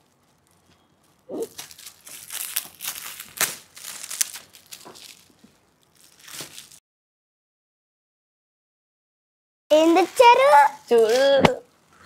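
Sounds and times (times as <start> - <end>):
foil wrapping tearing and crackling: 0.0 - 6.8.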